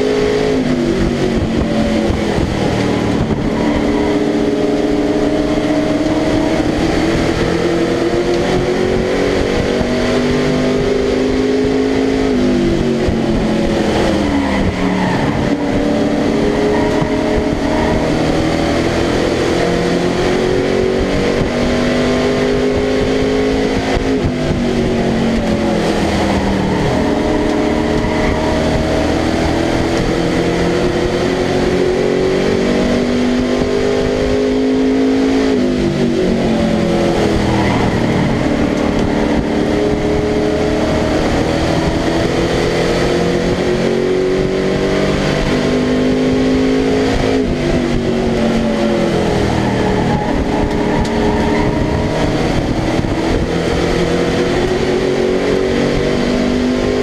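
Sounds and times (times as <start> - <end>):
truck engine under racing load: 0.0 - 57.0.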